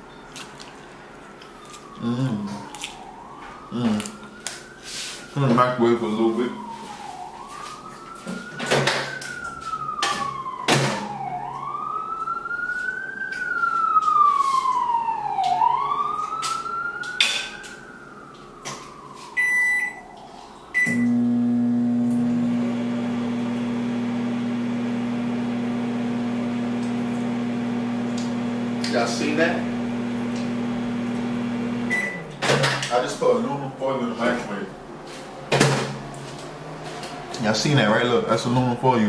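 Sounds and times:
siren wailing: 0.0 - 38.0
microwave keypad beeps: 19.4 - 20.0, 20.8 - 21.2, 31.9 - 32.2
microwave humming: 20.8 - 32.8.

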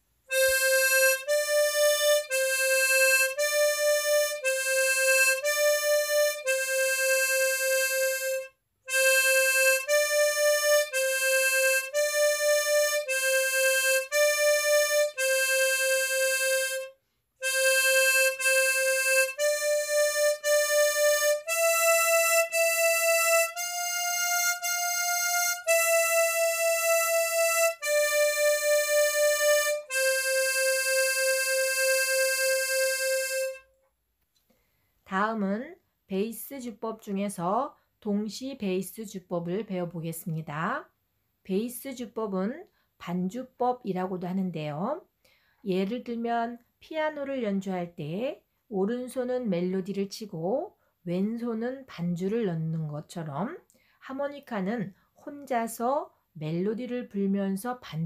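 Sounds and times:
harmonica melody: 0.3 - 33.8.

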